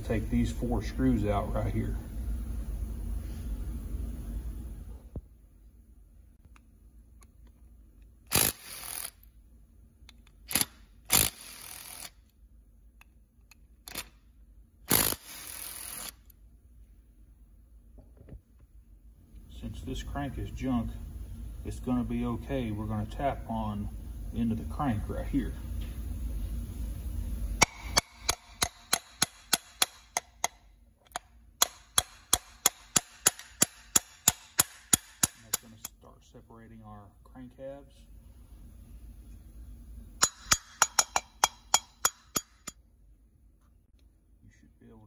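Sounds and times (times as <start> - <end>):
screws clicking loose: 10.1 - 12.2, 13.5 - 14.2
screw scraping as it turns: 10.5 - 12.2
metallic hammer taps: 27.6 - 35.9, 40.2 - 42.8.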